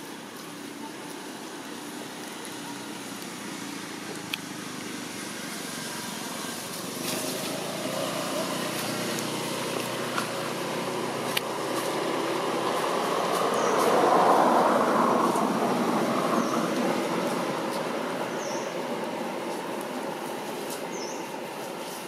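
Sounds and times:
motor vehicle rumble: 0.0 - 22.0.

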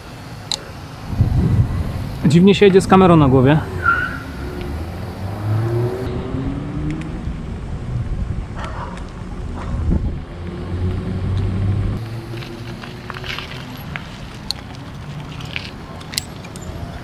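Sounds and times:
wind rumble: 0.0 - 17.0
bicycle tyres rolling on bricks: 12.0 - 17.0.

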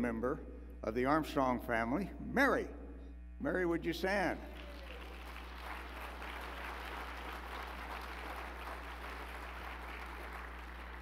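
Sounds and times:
low electrical hum: 0.0 - 11.0
audience applauding: 4.6 - 11.0.

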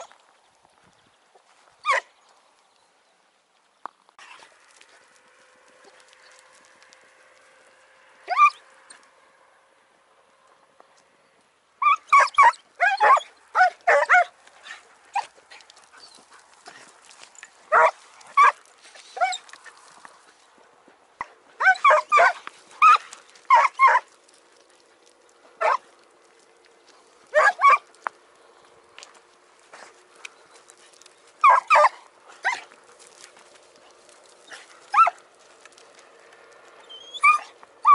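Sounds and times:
hounds barking and baying: 4.2 - 9.1, 11.8 - 20.3, 21.2 - 28.2, 29.0 - 37.9.

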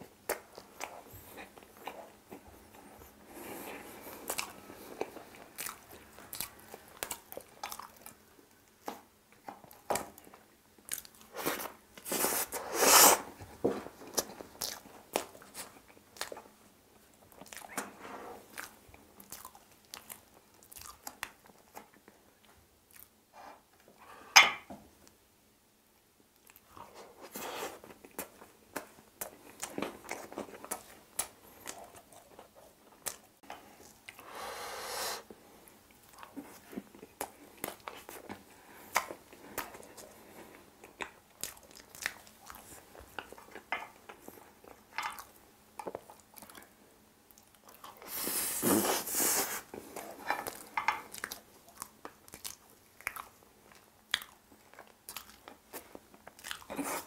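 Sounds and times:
person chewing wetly: 0.2 - 12.4, 14.1 - 16.6, 17.2 - 17.9, 18.5 - 23.2, 35.9 - 57.0.

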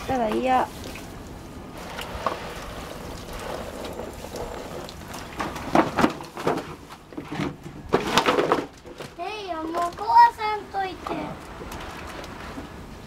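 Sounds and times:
plastic pool crinkling: 0.0 - 12.8
water splashing: 0.0 - 13.0
water hissing from hose nozzle: 1.8 - 5.3.

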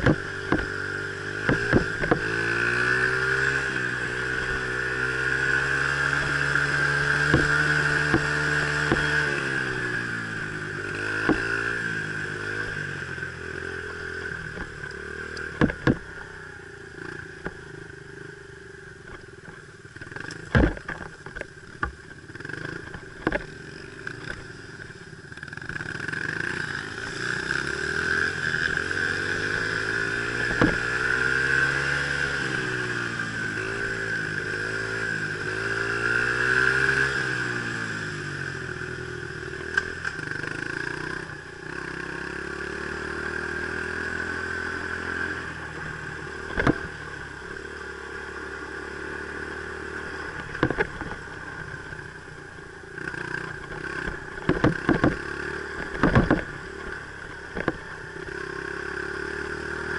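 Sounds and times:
sharp knocks: 0.0 - 0.7, 1.4 - 2.3, 7.2 - 9.2, 15.6 - 16.0, 20.5 - 21.9, 30.4 - 30.8, 55.9 - 56.5
dirt bike engine revving: 0.0 - 17.6, 25.4 - 52.3, 52.9 - 59.9.

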